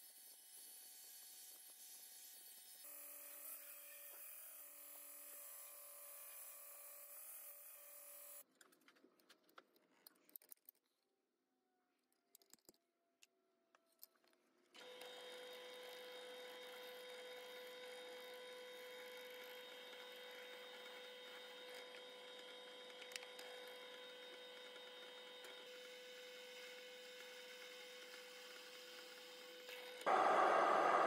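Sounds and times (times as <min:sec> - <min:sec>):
drill press humming and whining: 0:14.8 - 0:31.0.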